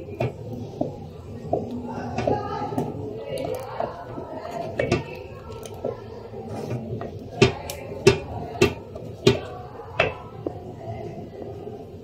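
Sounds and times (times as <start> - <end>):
spatula knocking against metal pot: 7.4 - 10.3.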